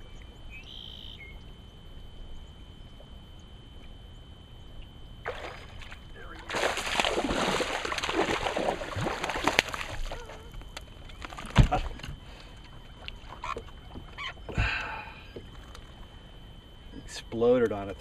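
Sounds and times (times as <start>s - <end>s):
fish thrashing in water: 5.2s - 14.8s
thump on boat: 11.4s - 12.2s.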